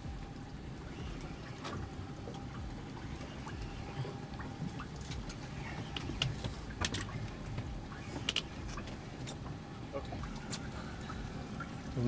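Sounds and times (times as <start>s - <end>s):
water around a boat: 0.0s - 12.0s
faint clicks and knocks: 1.2s - 9.6s.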